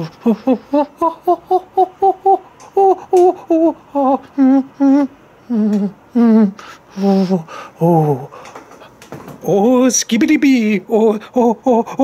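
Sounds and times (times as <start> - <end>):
person crooning sing-song syllables: 0.0 - 8.3.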